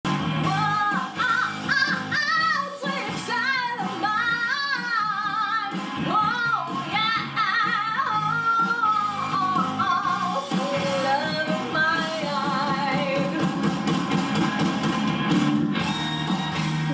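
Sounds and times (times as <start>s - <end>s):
musical accompaniment: 0.1s - 16.9s
woman singing: 0.4s - 13.6s.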